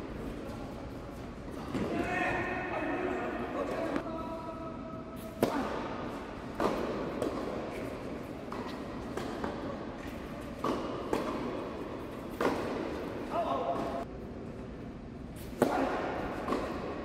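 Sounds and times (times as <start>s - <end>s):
tennis ball struck by rackets: 5.2s - 14.0s, 15.4s - 17.0s
tennis ball bouncing on hard court: 5.3s - 14.0s, 15.5s - 17.0s.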